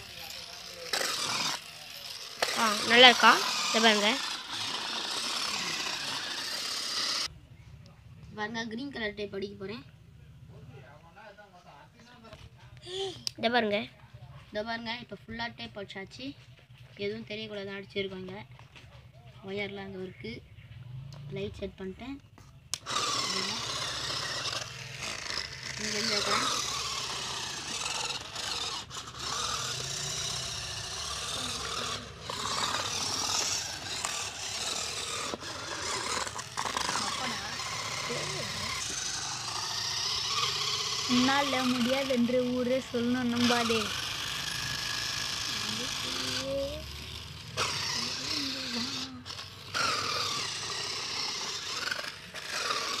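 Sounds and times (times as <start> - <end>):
small motors whirring: 0.0 - 7.3, 21.1 - 53.0
toy car scraping on cardboard: 0.0 - 7.3, 22.5 - 53.0.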